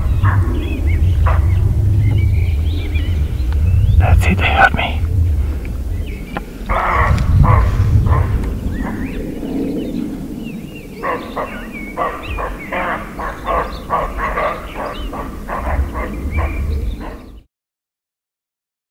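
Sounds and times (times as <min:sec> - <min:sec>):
deer barking: 0:06.7 - 0:08.4, 0:11.0 - 0:17.3.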